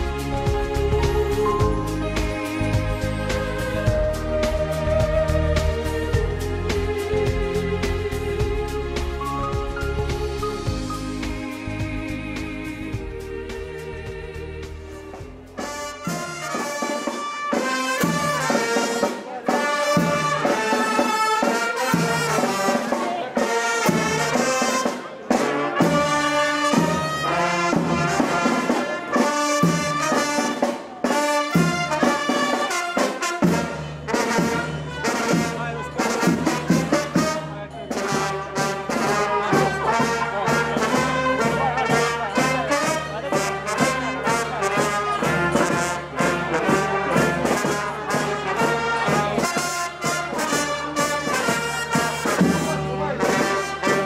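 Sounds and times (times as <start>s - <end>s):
low bass: 0.0s - 15.6s
brass band playing: 0.0s - 54.0s.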